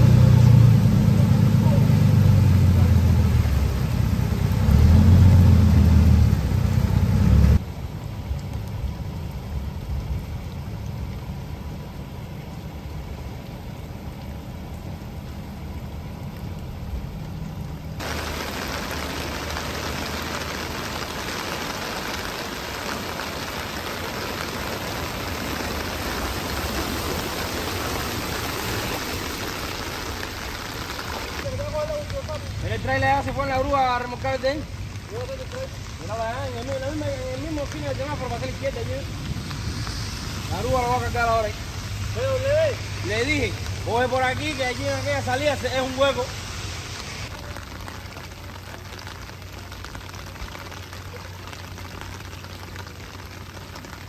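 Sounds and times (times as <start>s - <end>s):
vehicle engine running: 0.0s - 7.6s
hiss of water on streets: 0.0s - 54.0s.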